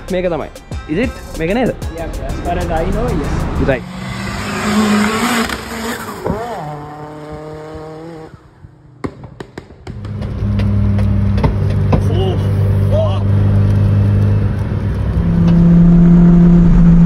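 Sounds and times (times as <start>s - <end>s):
car engine revving: 1.2s - 9.0s, 9.9s - 17.0s
exhaust pops: 4.4s - 17.0s.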